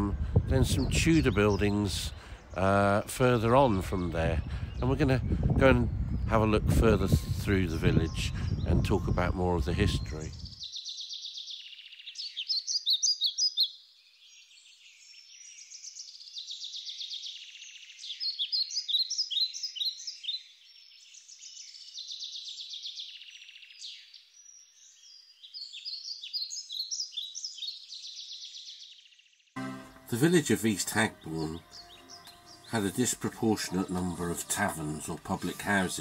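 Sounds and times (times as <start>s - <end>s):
bird trills and chirps: 7.7s - 29.3s, 30.1s - 36.0s.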